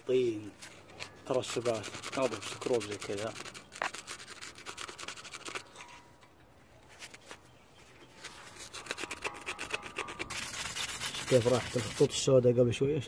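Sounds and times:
screwdriver scraping metal: 8.4s - 12.1s.

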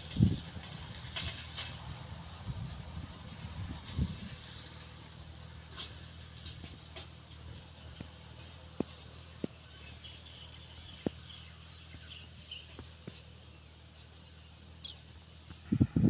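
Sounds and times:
distant tractor engine drone: 0.0s - 16.0s
birds chirping: 8.4s - 15.6s.

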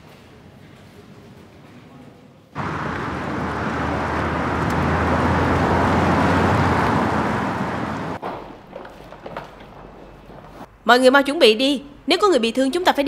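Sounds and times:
vehicles driving past: 2.6s - 8.2s.

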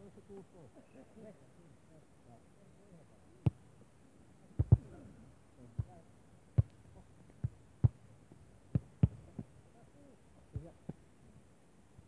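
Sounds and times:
dull sharp thumps: 8.7s - 9.5s.

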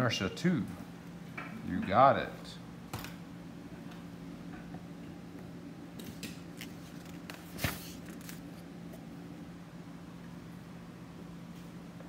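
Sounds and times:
pages rustling and turning: 6.0s - 8.7s.

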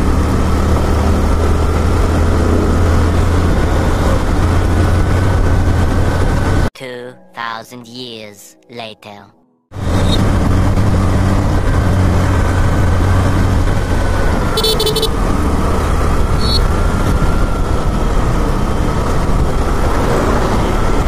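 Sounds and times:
rushing wind noise: 0.0s - 6.7s, 9.7s - 21.0s
motorcycle engine running: 9.7s - 20.8s
horn toot: 14.5s - 15.2s.

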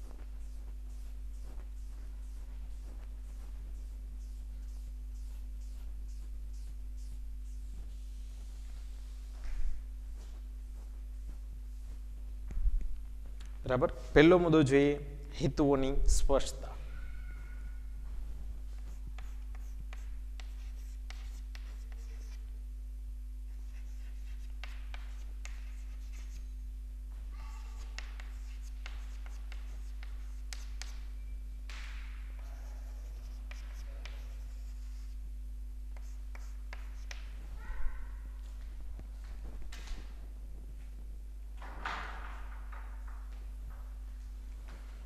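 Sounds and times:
chalk scratching on chalkboard: 0.0s - 9.3s, 18.7s - 22.5s, 23.5s - 26.6s, 27.6s - 31.1s, 32.4s - 35.2s, 36.0s - 37.4s
low electrical hum: 0.0s - 45.0s.

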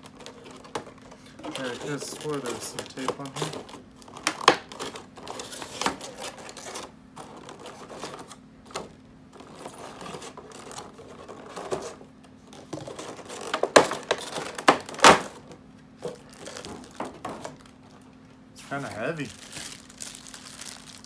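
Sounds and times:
plastic packaging crinkling: 0.0s - 8.4s, 9.3s - 21.0s
sharp plastic knocks: 13.4s - 15.6s.

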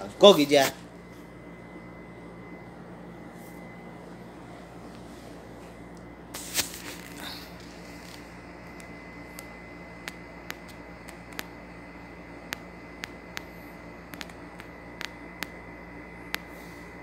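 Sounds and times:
steady background hum: 0.0s - 17.0s.

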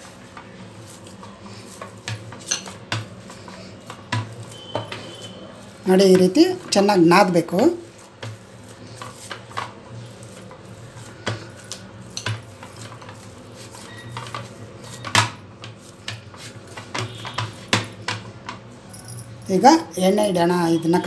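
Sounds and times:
dough kneaded in glass bowl: 0.0s - 21.0s.

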